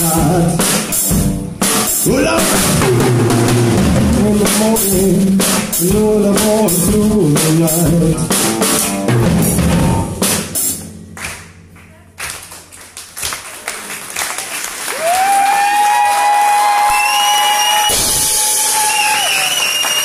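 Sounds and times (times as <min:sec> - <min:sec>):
drum and cymbal hits: 0:00.0 - 0:11.7, 0:17.7 - 0:19.6
rock band playing: 0:00.0 - 0:12.1, 0:17.6 - 0:20.0
audience applause: 0:12.0 - 0:20.0
high whistle: 0:16.8 - 0:20.0.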